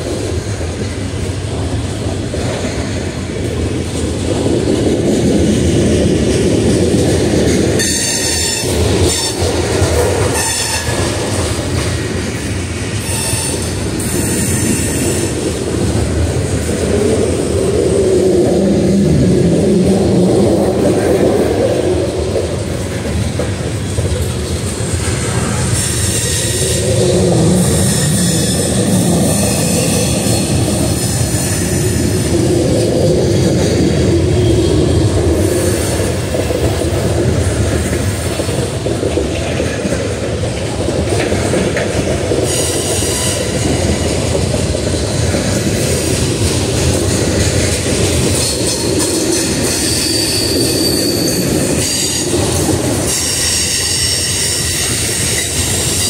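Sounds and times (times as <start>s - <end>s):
freight train rolling past: 0.0s - 56.0s
high wheel squeal: 10.3s - 11.2s, 13.0s - 15.4s, 25.4s - 31.8s, 48.4s - 52.4s, 53.0s - 56.0s.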